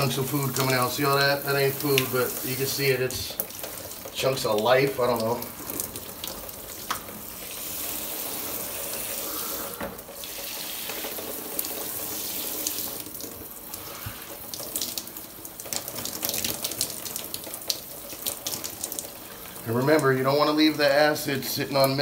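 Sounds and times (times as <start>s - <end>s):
shower spray on tile: 0.0s - 5.9s, 6.7s - 15.1s.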